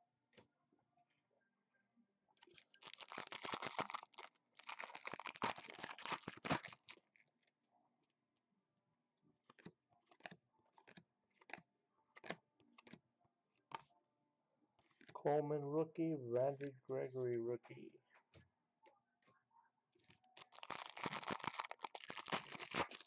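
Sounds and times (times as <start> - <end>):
foil wrapper tearing and crinkling: 2.4 - 7.0, 20.0 - 23.0
cards clicking: 9.5 - 11.6, 12.2 - 13.0.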